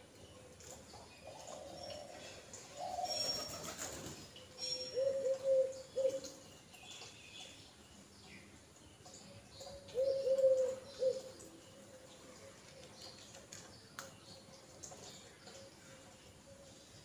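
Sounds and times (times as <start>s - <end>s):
pigeon cooing: 1.2s - 3.9s, 4.9s - 6.4s, 9.8s - 11.3s.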